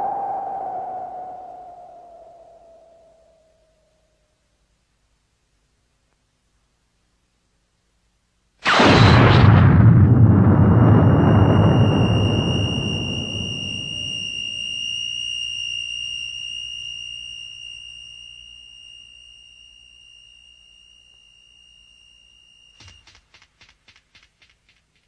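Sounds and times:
high-pitched ringing tone: 0.0 - 4.3, 10.4 - 23.2
deep explosion rumble: 8.7 - 14.3.

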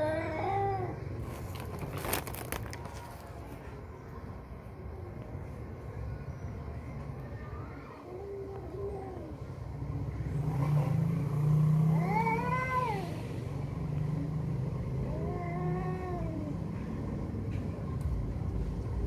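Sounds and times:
cats yowling: 14.9 - 16.6.

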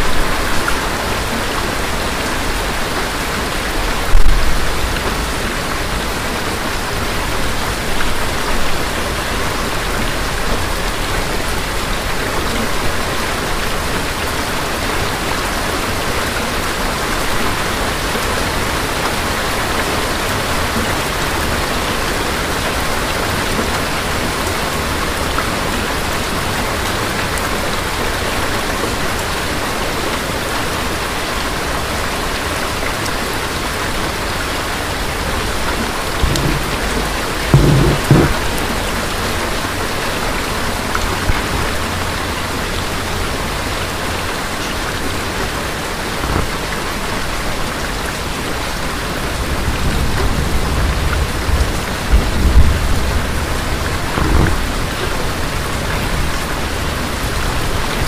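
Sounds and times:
steady rain: 0.0 - 58.0
thunder clap and rumble: 4.0 - 6.4, 35.8 - 42.4, 49.3 - 57.8.

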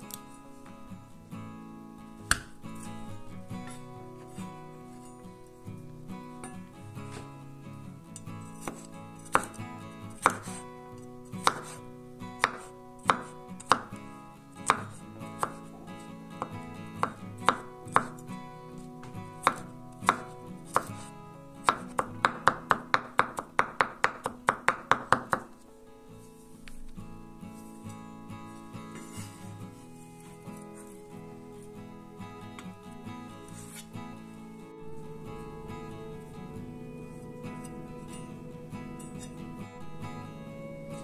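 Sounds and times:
knife chopping on wooden board: 11.4 - 11.8, 12.4 - 13.9.

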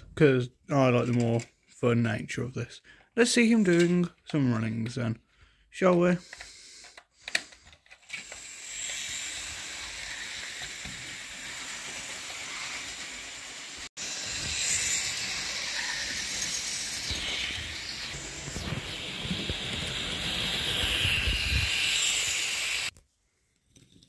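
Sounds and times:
model train motor whirring: 6.2 - 22.9.

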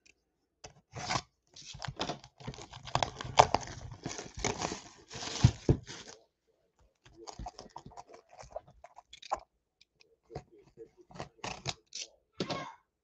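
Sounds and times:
cardboard box scraping and rustling: 2.5 - 6.2.

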